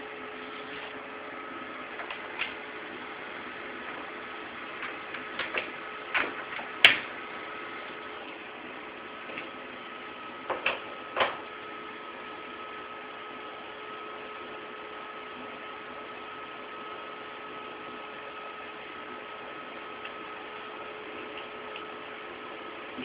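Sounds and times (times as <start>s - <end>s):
welder humming with whine: 0.0s - 23.0s.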